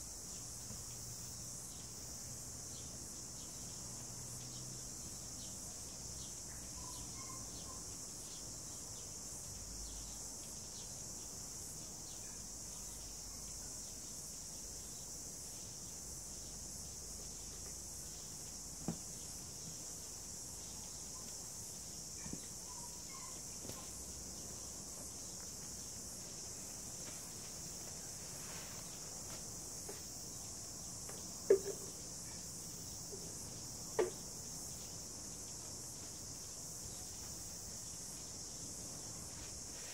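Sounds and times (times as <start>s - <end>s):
high-pitched insect chorus: 0.0s - 39.9s
faint chirps: 5.4s - 18.6s, 19.2s - 25.5s
sharp knocks: 31.5s - 31.9s, 34.0s - 34.2s.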